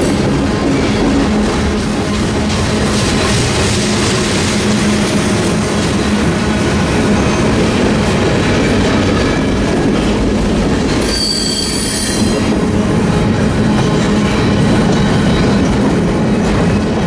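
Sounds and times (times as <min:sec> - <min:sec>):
train wheels rumbling and rattling: 0:00.0 - 0:17.0
train wheel squeal: 0:10.9 - 0:12.5.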